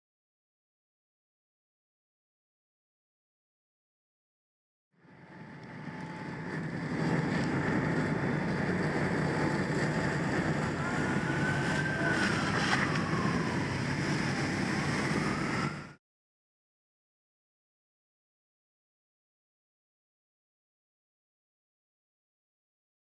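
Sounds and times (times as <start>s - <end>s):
engine-like rumble: 5.0s - 16.0s
faint whine: 5.0s - 16.0s.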